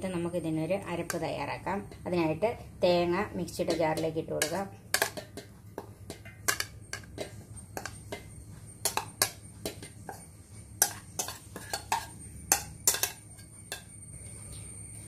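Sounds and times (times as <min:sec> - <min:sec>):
spoon scraping ceramic bowl: 0:05.1 - 0:14.6.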